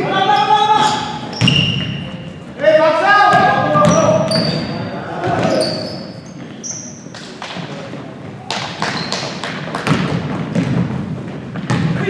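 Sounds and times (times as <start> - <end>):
sneaker squeak: 0.0 - 2.5, 3.3 - 7.4, 8.2 - 10.0
basketball bouncing on gym floor: 0.8 - 2.2, 3.3 - 5.8, 8.3 - 12.0.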